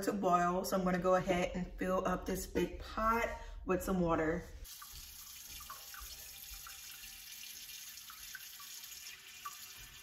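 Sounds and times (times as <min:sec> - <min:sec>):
faucet water filling a pot: 0:04.6 - 0:10.0.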